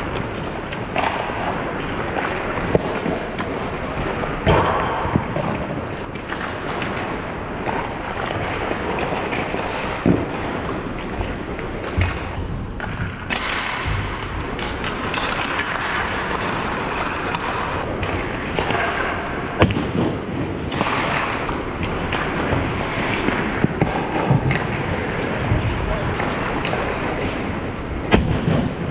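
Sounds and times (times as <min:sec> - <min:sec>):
skate blades scraping ice: 0:00.0 - 0:28.9
sticks and puck clacking: 0:00.0 - 0:28.9.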